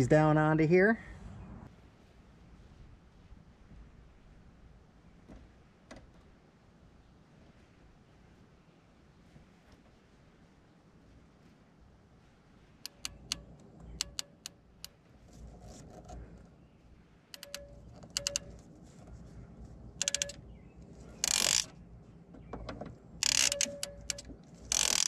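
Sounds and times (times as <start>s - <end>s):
ratcheting crimp tool clicking: 12.9s - 14.6s, 17.4s - 18.6s, 20.0s - 20.4s, 21.2s - 21.7s, 23.2s - 25.0s.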